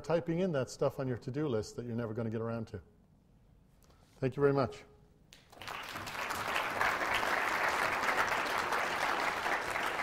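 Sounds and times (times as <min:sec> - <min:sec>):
audience applauding: 0:05.4 - 0:10.0.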